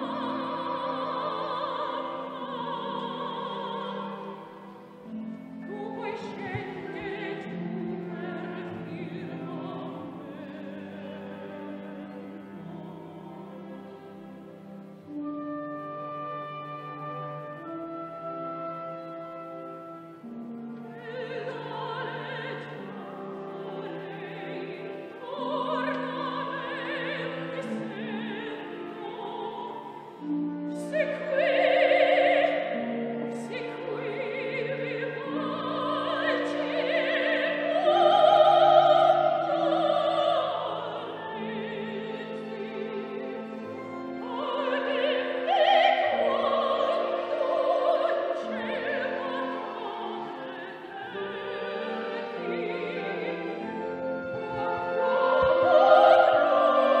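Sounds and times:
operatic singing with vibrato: 0:00.0 - 0:57.0
orchestral accompaniment: 0:00.0 - 0:57.0.

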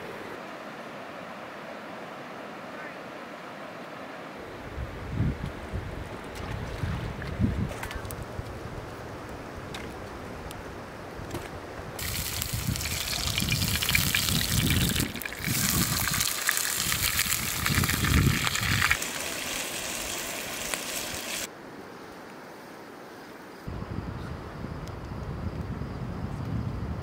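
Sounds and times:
fish sizzling in a pan: 0:12.0 - 0:21.5.

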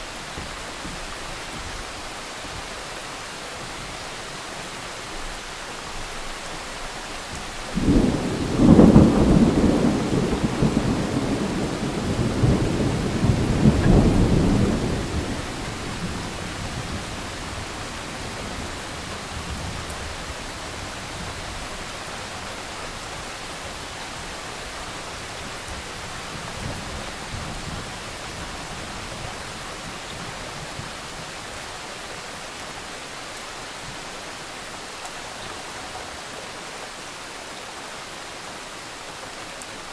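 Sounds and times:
steady rain: 0:00.0 - 0:39.9
thunder rumbling: 0:07.7 - 0:21.8.

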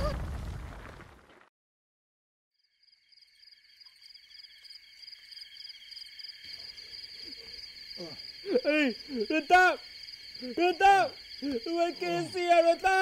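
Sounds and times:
crickets trilling: 0:02.6 - 0:13.0.

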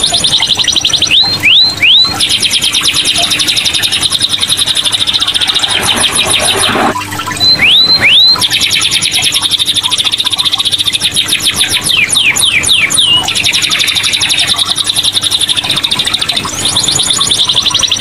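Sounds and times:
canary singing trills: 0:00.0 - 0:18.0
falling whistled notes: 0:03.1 - 0:08.6.

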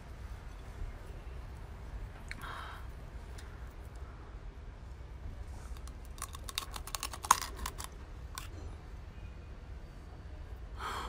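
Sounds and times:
shell cracking between teeth: 0:05.8 - 0:08.5.

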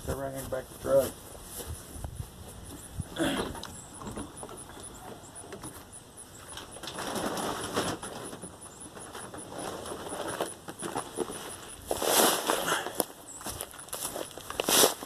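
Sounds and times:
paper sacks rustling and scraping: 0:06.7 - 0:13.0, 0:13.9 - 0:15.0.

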